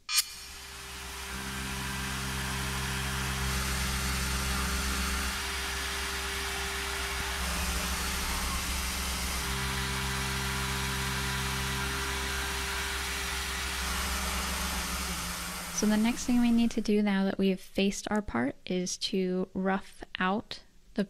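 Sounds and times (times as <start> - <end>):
hiss of metal cutting: 0.1 - 16.8
milling machine hum: 0.3 - 16.8.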